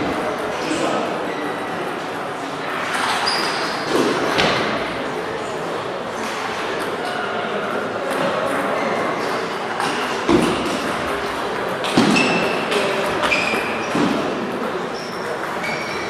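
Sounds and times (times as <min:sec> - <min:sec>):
murmur of voices: 0:00.0 - 0:16.0
table tennis balls clicking: 0:14.4 - 0:16.0.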